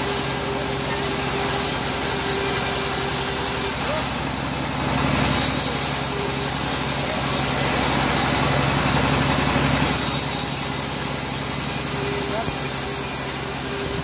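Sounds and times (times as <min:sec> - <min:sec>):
bandsaw mill engine running: 0:00.0 - 0:14.0
saw blade ripping a board: 0:05.2 - 0:08.4, 0:09.8 - 0:14.0.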